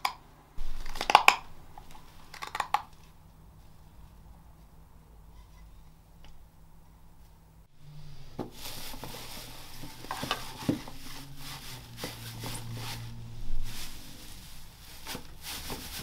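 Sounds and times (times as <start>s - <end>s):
hands rustling wood shavings: 8.2s - 16.0s.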